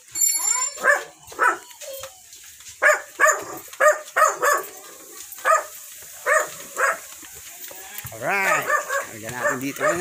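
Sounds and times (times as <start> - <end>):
dog barking: 0.8 - 1.8, 2.8 - 4.8, 5.4 - 7.1, 8.4 - 10.0.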